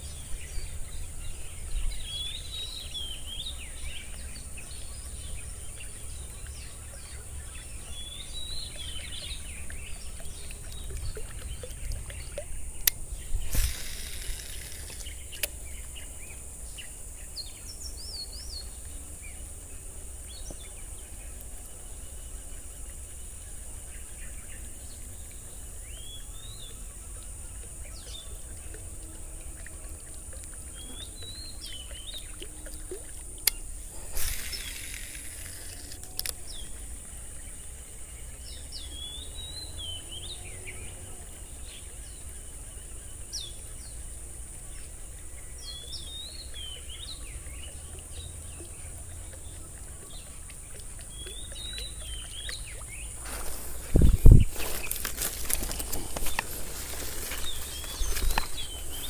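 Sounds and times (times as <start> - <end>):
birds chirping: 0.0 - 59.0
steady high hiss: 12.5 - 27.1, 33.4 - 39.5, 52.9 - 59.0
fishing reel click: 12.8 - 15.6, 33.4 - 36.6
fishing line casting swish: 13.4 - 15.5, 34.0 - 36.3.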